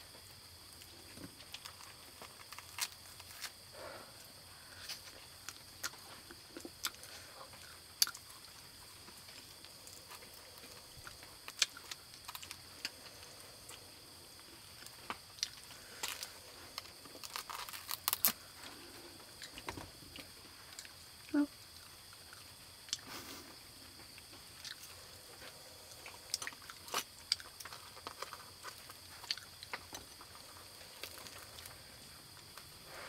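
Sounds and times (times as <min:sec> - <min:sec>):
faint high hiss: 0:18.2 - 0:28.0.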